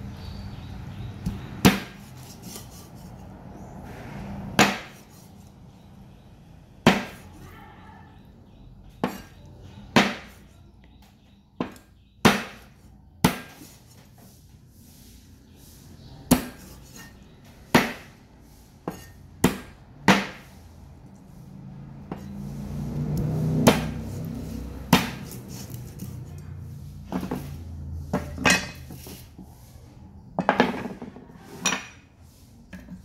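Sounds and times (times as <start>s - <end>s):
cleaver chopping on wooden block: 1.2s - 2.7s, 4.6s - 5.1s, 6.8s - 7.3s, 9.0s - 10.5s, 11.6s - 13.8s, 16.3s - 16.7s, 17.7s - 18.1s, 18.8s - 20.5s, 23.2s - 24.0s, 24.9s - 26.2s.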